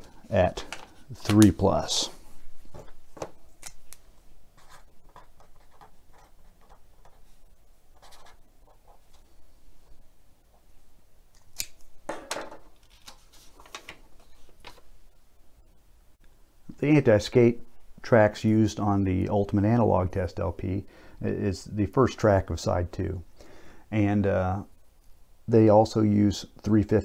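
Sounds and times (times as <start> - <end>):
pen scratching on paper: 8.0 - 9.2.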